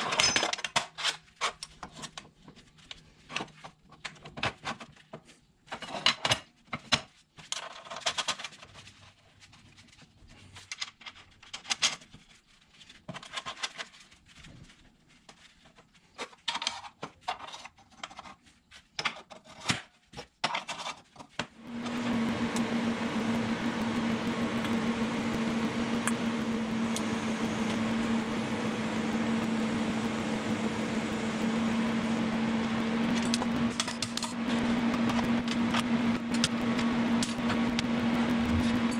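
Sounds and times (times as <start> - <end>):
power tool humming: 21.6 - 38.9.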